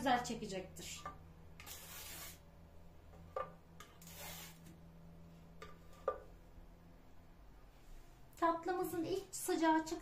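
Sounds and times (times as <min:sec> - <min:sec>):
spatula scraping baking tray: 0:01.6 - 0:02.4.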